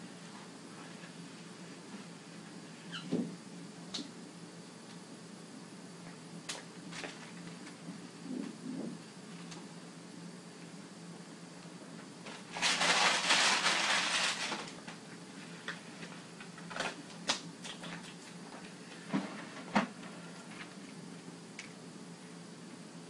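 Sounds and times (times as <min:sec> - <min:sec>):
loud rustle: 0:12.3 - 0:14.7.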